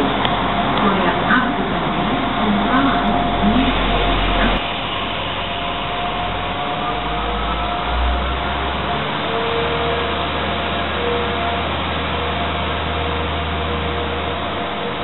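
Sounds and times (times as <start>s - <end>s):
train running rumble: 0.0s - 15.0s.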